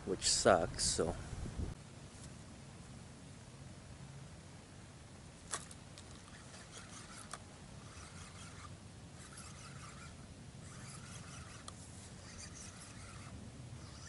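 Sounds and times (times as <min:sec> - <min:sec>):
fishing reel whirring: 0:06.0 - 0:14.0
fishing reel clicks: 0:06.2 - 0:14.0.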